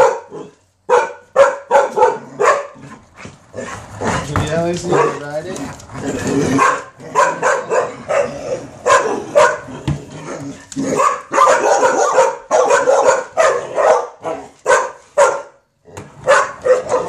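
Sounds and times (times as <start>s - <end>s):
dog barking: 0.0s - 2.8s, 4.8s - 5.3s, 6.5s - 9.8s, 10.9s - 17.0s.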